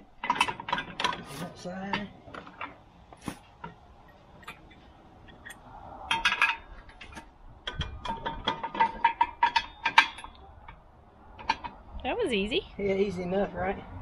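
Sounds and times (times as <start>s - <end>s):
metal hitch clinking and clanking: 0.0s - 11.9s.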